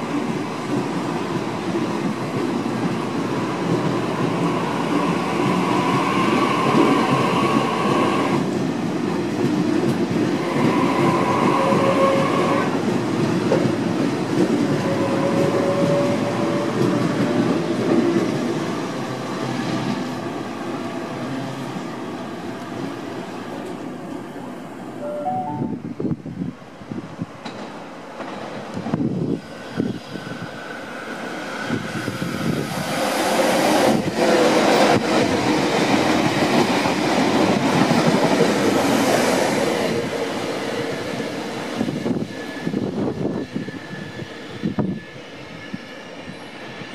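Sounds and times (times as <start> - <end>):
train wheels clicking over rail joints: 27.4 - 29.0.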